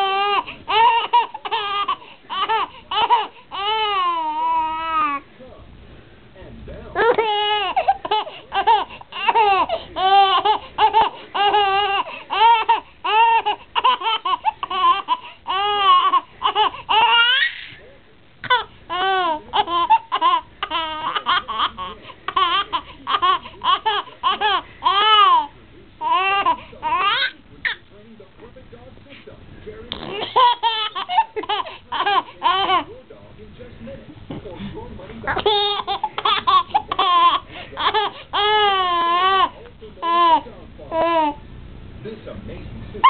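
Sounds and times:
baby giggling: 0.0s - 5.2s, 7.0s - 17.8s, 18.4s - 27.8s, 30.0s - 32.9s, 35.4s - 41.4s.

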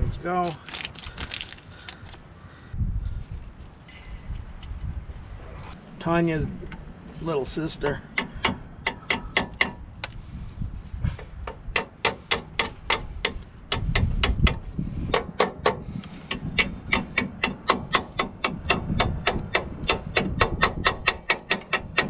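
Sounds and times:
small hammer tapping on metal: 11.5s - 22.0s.

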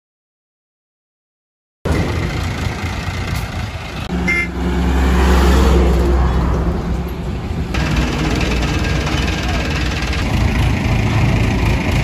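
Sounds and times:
highway traffic: 1.9s - 12.0s
truck engine rumble passing: 1.9s - 12.0s
short high tone: 4.2s - 4.6s.

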